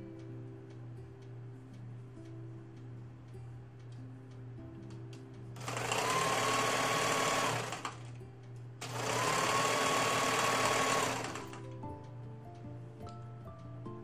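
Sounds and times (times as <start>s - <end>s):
electric sewing machine stitching: 5.6s - 8.2s, 8.8s - 11.7s.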